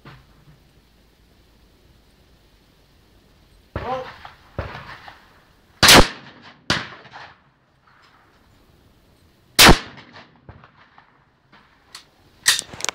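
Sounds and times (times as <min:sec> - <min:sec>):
shotgun bangs: 0:03.8 - 0:05.2, 0:05.8 - 0:07.4, 0:09.6 - 0:11.1
quieter crack: 0:09.6 - 0:12.9.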